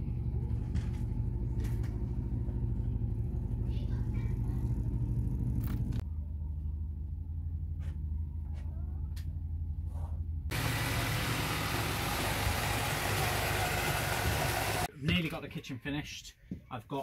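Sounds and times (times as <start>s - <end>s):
low rumble: 0.0s - 10.5s.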